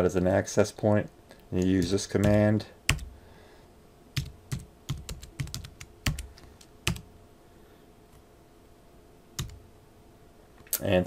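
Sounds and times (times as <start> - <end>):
typing on computer keyboard: 1.6 - 3.1, 4.2 - 7.0, 9.4 - 9.6.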